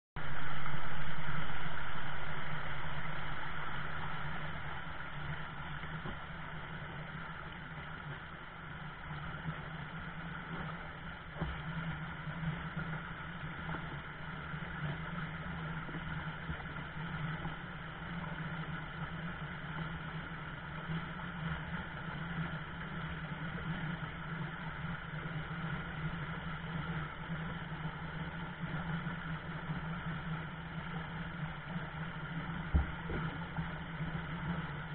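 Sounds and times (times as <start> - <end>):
stream rapids rushing: 0.2 - 7.4.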